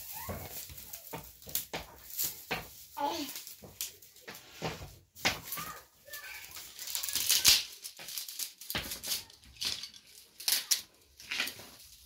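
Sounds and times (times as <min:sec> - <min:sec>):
dry broom straw rustling: 0:00.0 - 0:12.0.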